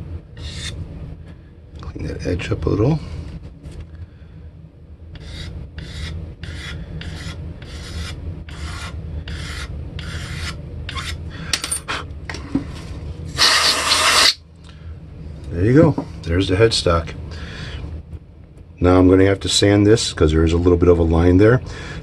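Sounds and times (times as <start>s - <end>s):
blade scraping painted wood: 5.2s - 11.2s.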